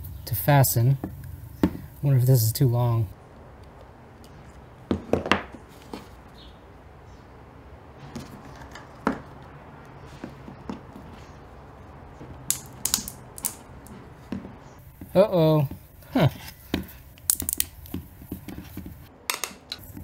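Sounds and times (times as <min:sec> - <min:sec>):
plastic parts clicking and knocking: 0:12.5 - 0:14.4, 0:16.7 - 0:18.1, 0:18.8 - 0:19.8.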